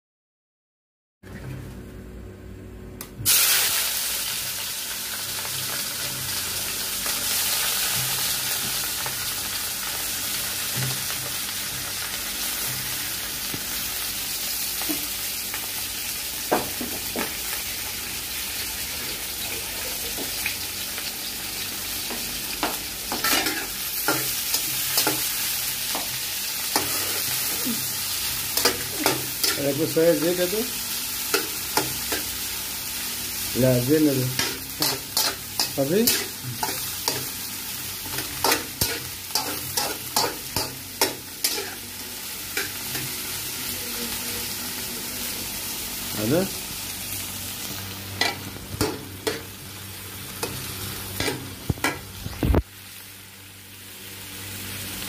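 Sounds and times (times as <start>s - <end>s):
onions sizzling in hot oil: 3.2s - 55.0s.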